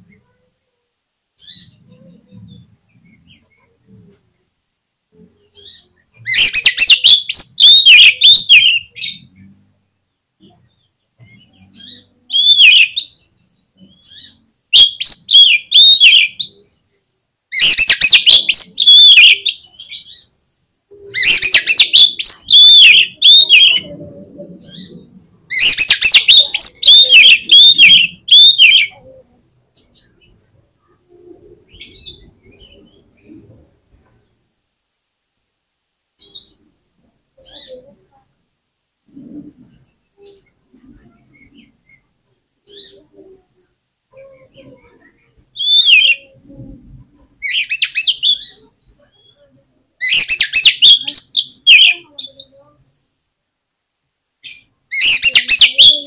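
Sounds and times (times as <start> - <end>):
bird song whistled notes: 5.4 - 9.3, 10.6 - 13.3, 13.9 - 16.7, 17.6 - 20.3, 21.1 - 23.9, 24.6 - 29.0, 45.5 - 46.2, 50.0 - 52.7.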